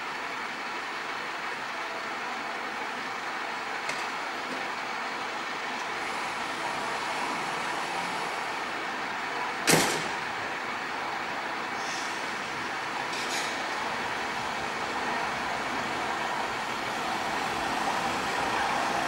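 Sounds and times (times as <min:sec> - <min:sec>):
city traffic noise: 0:00.0 - 0:19.0
sharp loud thump: 0:09.7 - 0:10.2.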